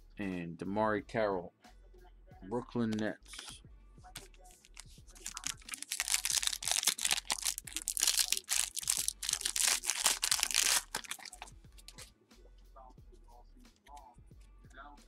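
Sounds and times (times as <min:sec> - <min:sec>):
foil wrapper crinkling and tearing: 0:04.5 - 0:12.0.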